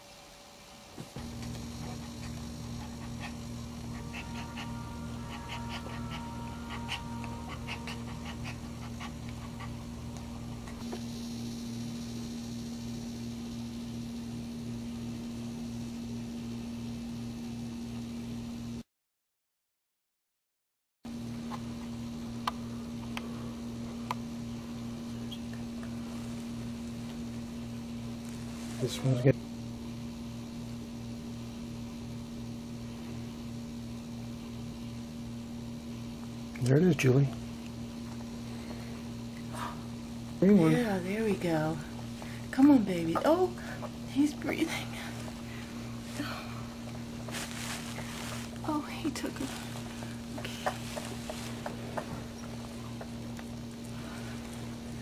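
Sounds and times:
steady low hum: 0.0s - 18.8s, 21.1s - 55.0s
dog panting: 1.2s - 10.8s
short high sounds: 3.3s - 9.9s.

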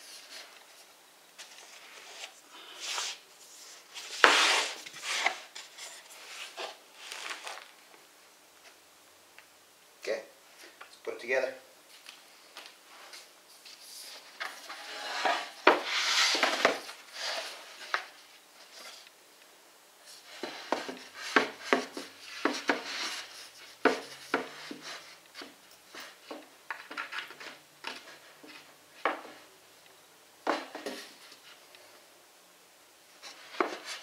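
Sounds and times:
boards scraping on carpet: 4.0s - 7.7s, 14.4s - 17.6s.

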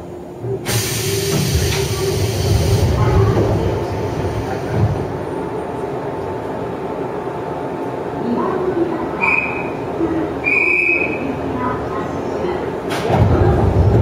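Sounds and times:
loud hiss of compressed air: 0.7s - 2.8s.

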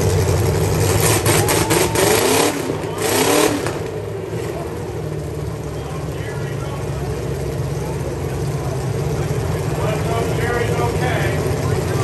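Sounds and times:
engine revving: 0.0s - 7.1s
car engines idling: 0.0s - 12.0s.

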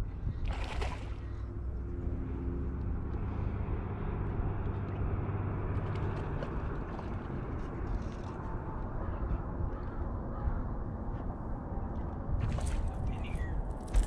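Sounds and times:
wind buffeting microphone: 0.0s - 1.2s.

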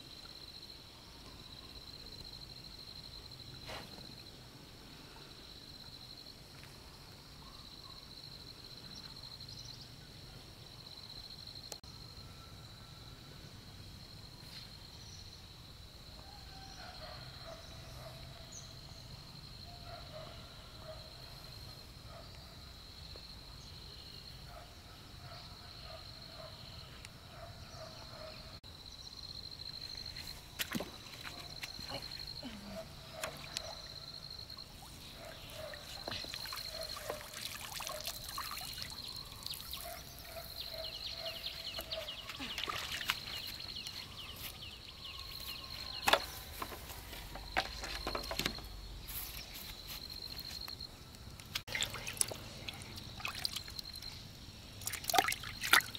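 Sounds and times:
water splashing and trickling: 30.2s - 40.7s, 41.8s - 44.1s, 51.3s - 55.9s
sharp splashes or knocks: 54.8s - 55.9s.

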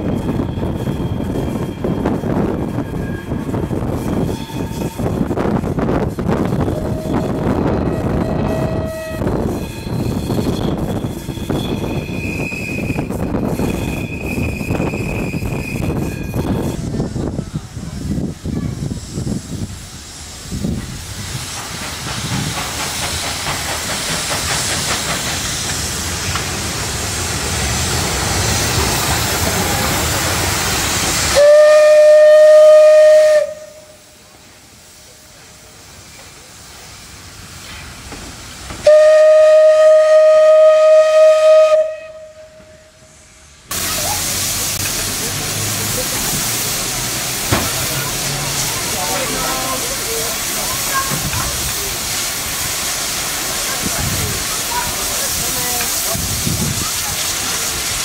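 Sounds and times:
steam locomotive hissing: 0.0s - 58.0s
steam whistle blasts: 6.6s - 10.4s, 11.1s - 16.8s, 31.3s - 34.2s, 38.8s - 43.1s.

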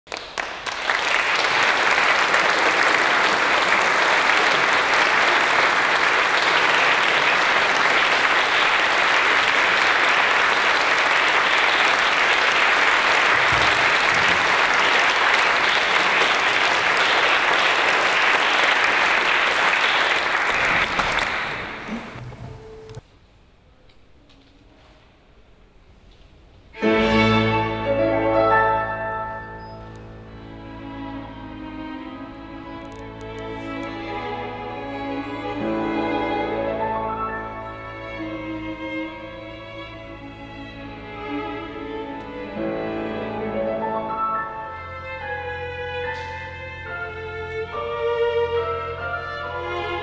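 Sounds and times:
audience applauding: 0.1s - 22.6s.

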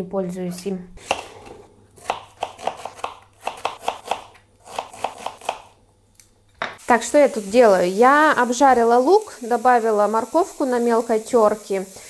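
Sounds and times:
knife chopping on wooden board: 1.0s - 5.7s.

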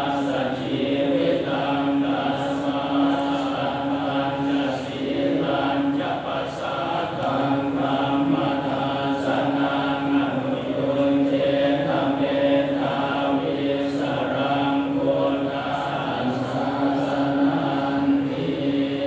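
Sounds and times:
voices chanting: 0.0s - 19.0s.

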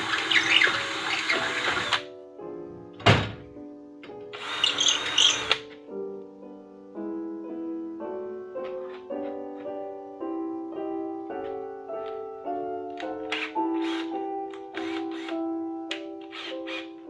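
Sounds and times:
cordless drill running: 0.0s - 2.0s, 4.4s - 5.6s, 13.3s - 14.1s, 14.8s - 15.4s, 16.3s - 16.9s
solo piano melody: 0.0s - 17.0s.

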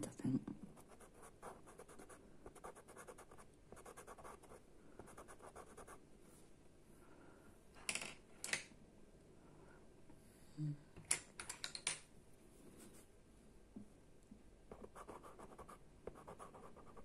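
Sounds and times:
pencil scratching on card: 0.8s - 6.0s, 14.7s - 17.0s.

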